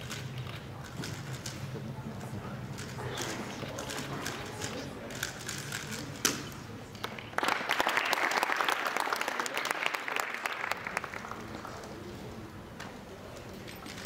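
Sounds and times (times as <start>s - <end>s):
audience applauding: 7.1s - 11.8s.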